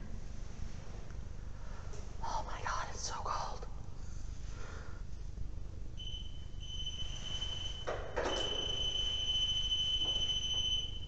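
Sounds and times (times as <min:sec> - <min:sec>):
high-pitched electronic beep tone: 0:06.0 - 0:11.0.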